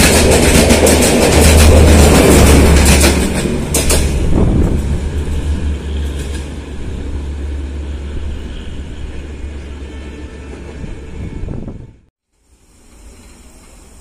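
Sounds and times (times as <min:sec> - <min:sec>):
train wheels rumbling on rails: 0:00.0 - 0:11.9.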